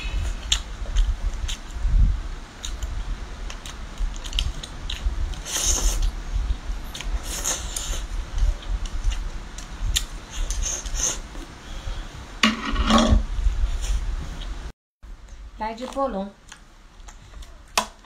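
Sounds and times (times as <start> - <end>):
person chewing: 0.3 - 1.7, 2.6 - 6.2.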